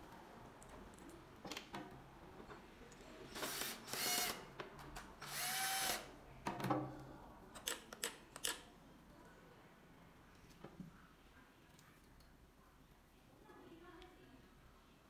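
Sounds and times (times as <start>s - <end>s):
cordless drill motor: 3.3s - 4.4s, 5.2s - 6.1s.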